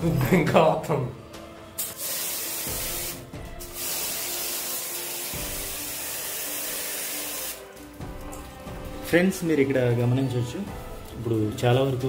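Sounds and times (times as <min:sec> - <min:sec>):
water jet hissing: 0:01.8 - 0:07.7.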